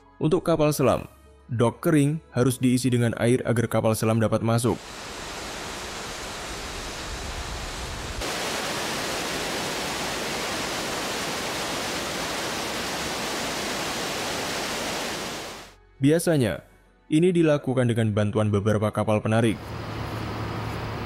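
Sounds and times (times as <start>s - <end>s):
water rushing: 4.8s - 15.8s.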